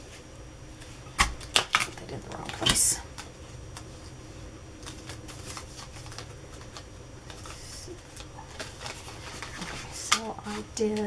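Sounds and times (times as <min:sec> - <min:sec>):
steady low hum: 0:00.0 - 0:11.0
card rustling and clicking: 0:04.8 - 0:11.0.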